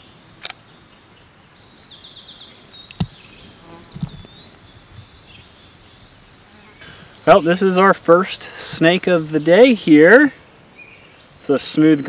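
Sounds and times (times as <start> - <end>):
high insect drone: 0.0 - 12.0
sharp click: 0.4 - 0.6
faint bird chirps: 0.9 - 7.7, 8.8 - 12.0.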